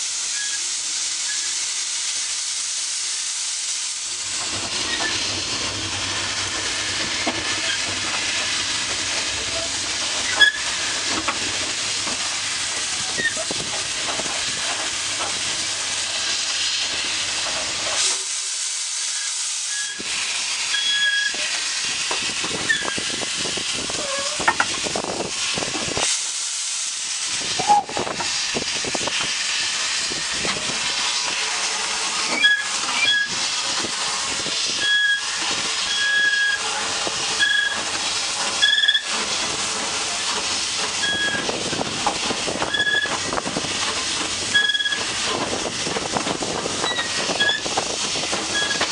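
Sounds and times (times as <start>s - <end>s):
steam hissing: 0.0s - 48.9s
short high squeals: 20.7s - 21.4s, 32.3s - 33.4s, 34.8s - 36.7s, 37.4s - 37.8s, 48.5s - 48.8s.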